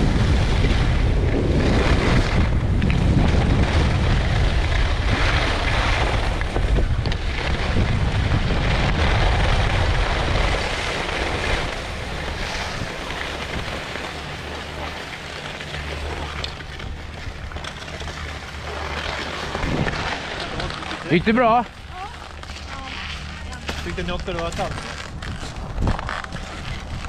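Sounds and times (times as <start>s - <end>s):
wind buffeting microphone: 0.0s - 15.1s, 19.4s - 22.3s, 23.2s - 27.0s
skis sliding over snow: 0.0s - 27.0s.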